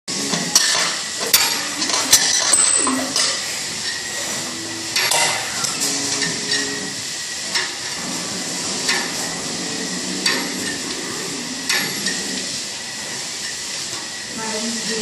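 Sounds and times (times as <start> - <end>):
gym equipment clinking and knocking: 2.2 - 3.4.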